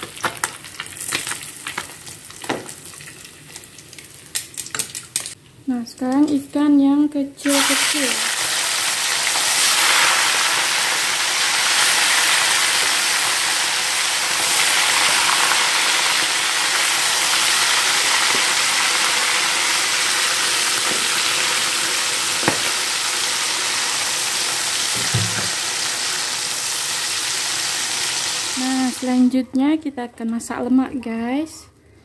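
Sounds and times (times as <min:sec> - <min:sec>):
fish frying in hot oil: 0:07.5 - 0:29.0.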